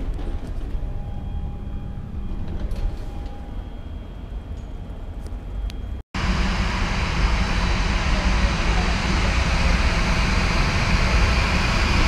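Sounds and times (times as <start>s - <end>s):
faint hum: 0.0s - 12.0s
airport terminal rumble: 6.2s - 12.0s.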